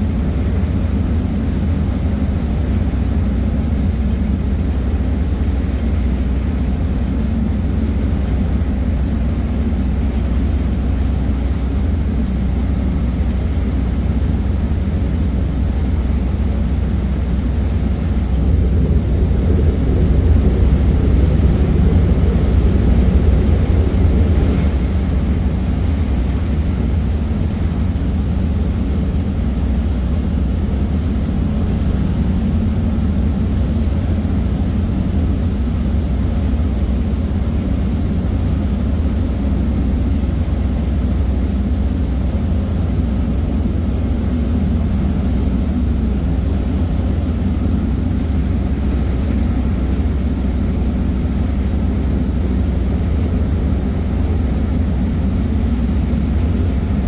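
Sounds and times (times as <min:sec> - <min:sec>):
churning water: 0:00.0 - 0:57.0
ferry engine rumble: 0:00.0 - 0:57.0
wind rushing: 0:17.4 - 0:27.6.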